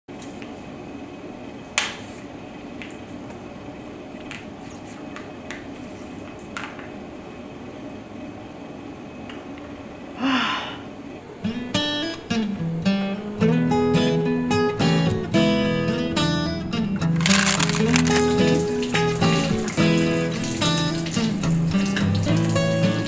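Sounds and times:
strummed acoustic guitar: 11.4s - 23.0s.

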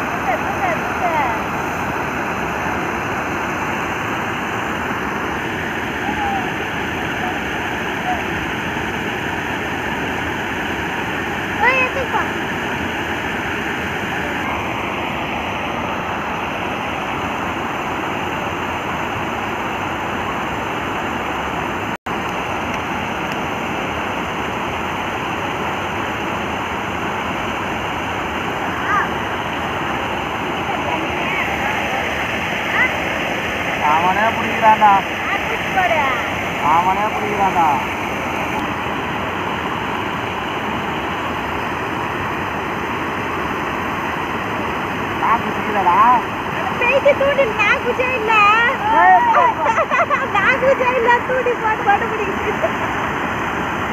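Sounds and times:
water rushing over weir: 0.0s - 53.9s.

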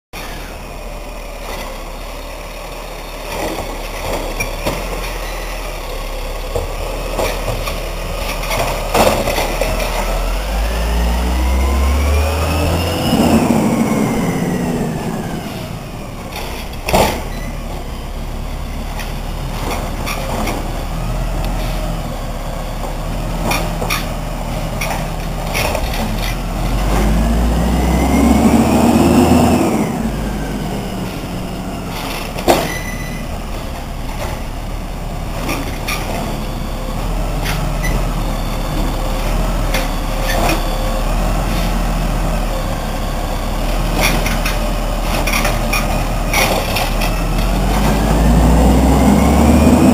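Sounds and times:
truck diesel engine revving: 0.2s - 49.9s.

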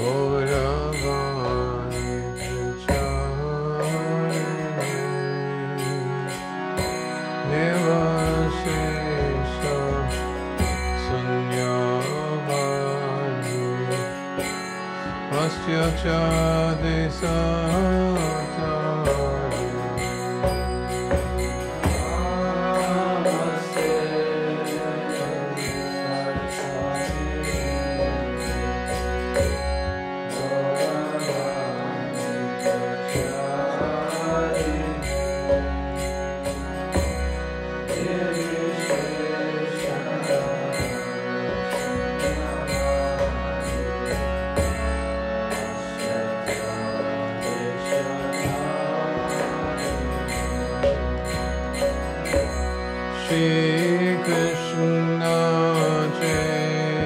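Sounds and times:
hand cymbals striking: 0.0s - 57.0s
held drone: 0.0s - 57.0s
wavering melody: 0.0s - 57.0s.

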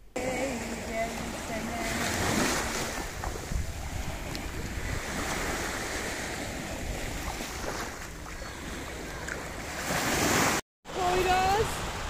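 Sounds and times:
small waves breaking on shore: 0.2s - 12.0s.

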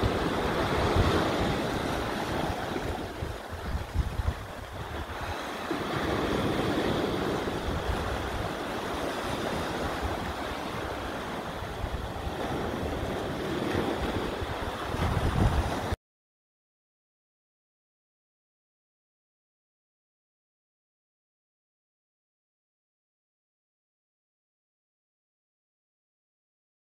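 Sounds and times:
surf washing against rocks: 0.0s - 16.0s
wind buffeting microphone: 0.0s - 16.0s.

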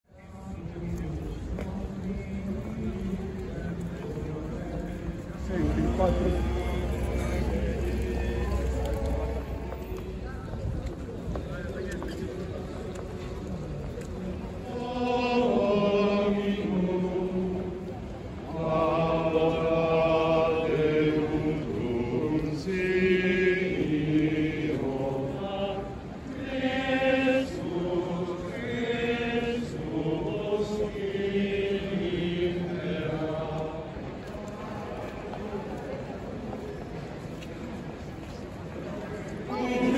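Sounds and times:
men singing plainchant: 5.4s - 9.8s, 14.7s - 17.7s, 18.5s - 33.9s.

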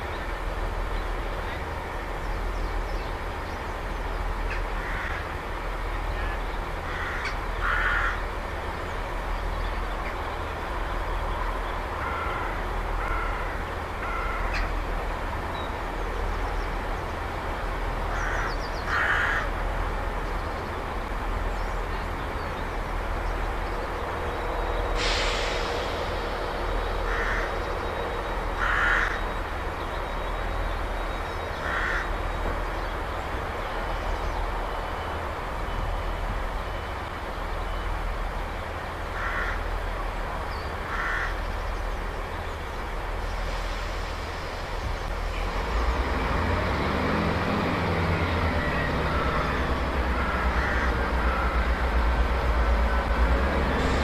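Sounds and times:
diesel train idling: 0.0s - 54.0s
crows cawing: 4.5s - 5.3s, 6.8s - 8.3s, 12.0s - 14.7s, 18.1s - 19.6s, 27.0s - 27.6s, 28.6s - 29.3s, 31.6s - 32.2s, 39.2s - 39.7s, 40.8s - 41.4s, 50.1s - 51.8s.

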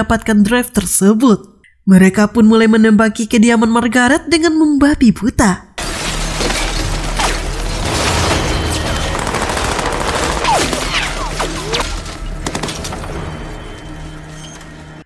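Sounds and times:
rapid rifle fire: 7.5s - 13.0s.

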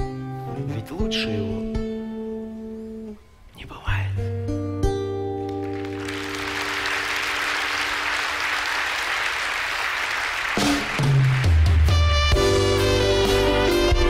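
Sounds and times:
music: 0.0s - 14.0s
audience applauding: 5.5s - 12.4s.

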